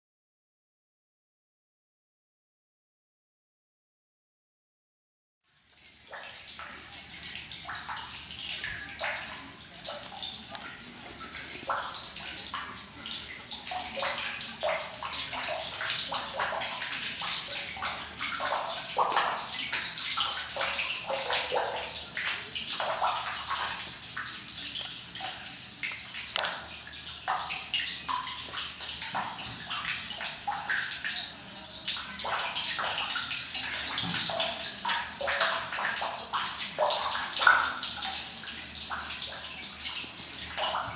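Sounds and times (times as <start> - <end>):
water trickling and splashing: 5.5 - 40.9.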